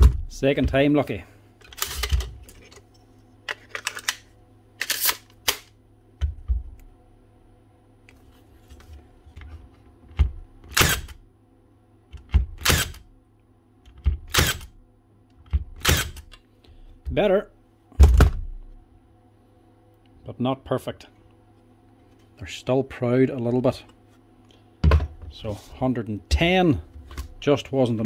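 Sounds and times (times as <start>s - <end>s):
stapler firing into wood: 10.7s - 11.2s, 12.3s - 13.0s, 14.2s - 14.7s, 15.8s - 16.3s.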